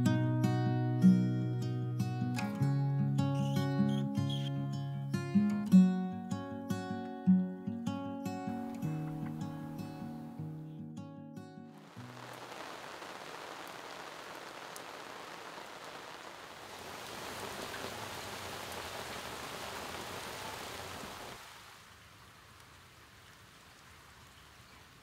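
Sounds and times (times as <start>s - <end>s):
rain falling: 11.7s - 25.0s.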